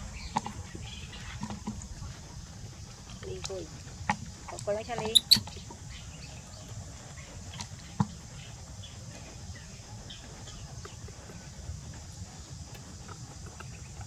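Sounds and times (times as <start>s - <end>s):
low rumble: 0.0s - 5.0s.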